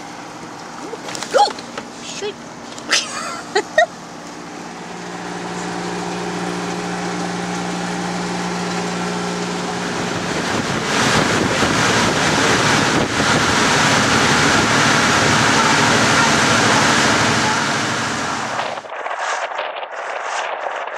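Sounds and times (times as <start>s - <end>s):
engine hum inside vehicle: 0.0s - 18.9s
rushing water: 4.0s - 18.9s
wind buffeting microphone: 4.4s - 20.9s.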